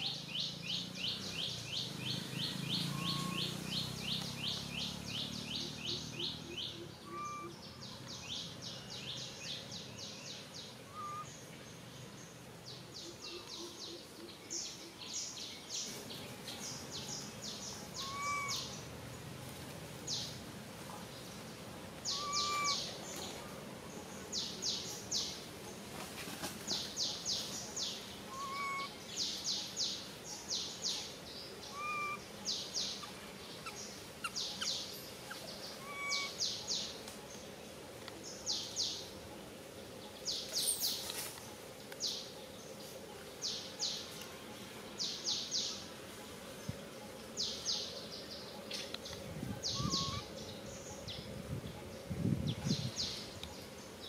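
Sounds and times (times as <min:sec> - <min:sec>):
birds chirping: 0:00.0 - 0:25.9, 0:26.7 - 0:54.0.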